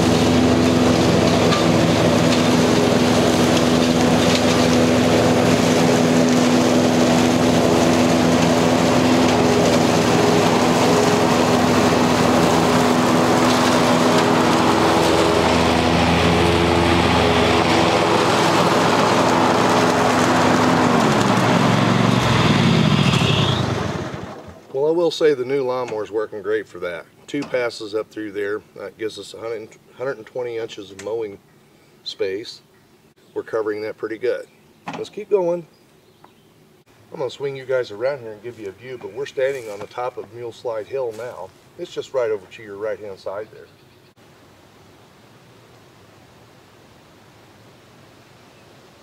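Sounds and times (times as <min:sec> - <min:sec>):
lawn mower engine running: 0:00.0 - 0:24.9, 0:37.1 - 0:42.4.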